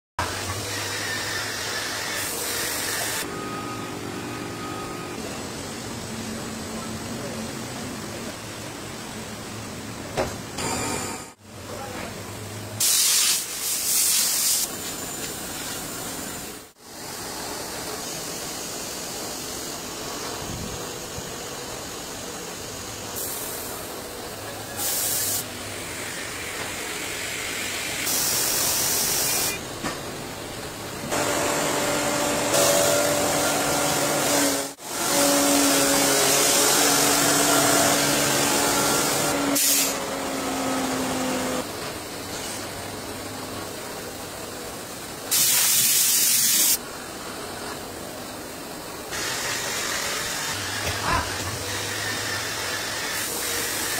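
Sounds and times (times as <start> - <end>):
workshop machinery running: 0.2 - 53.9
spindle machine hum: 3.2 - 8.3
loud hissing bursts: 12.8 - 29.7, 31.0 - 40.0, 44.8 - 46.9, 48.4 - 53.9.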